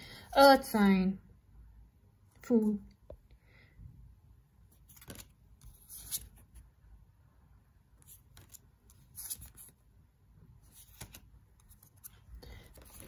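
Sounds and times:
cards sliding and rustling: 0:04.7 - 0:06.7, 0:08.0 - 0:09.8, 0:10.6 - 0:13.0.

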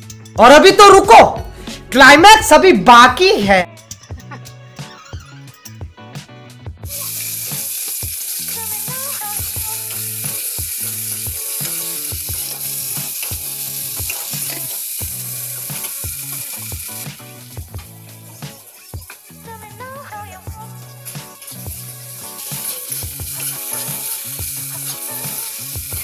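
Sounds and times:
background music with steady beat: 0:00.0 - 0:26.0
food sizzling in hot oil: 0:06.8 - 0:26.0.

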